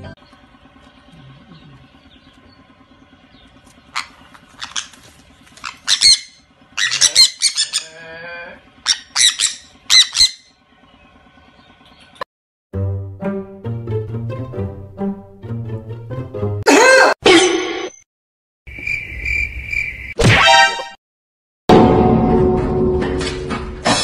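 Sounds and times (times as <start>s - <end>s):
faint low hum: 0.0s - 5.8s
parrots screeching: 3.9s - 8.2s, 8.8s - 10.5s.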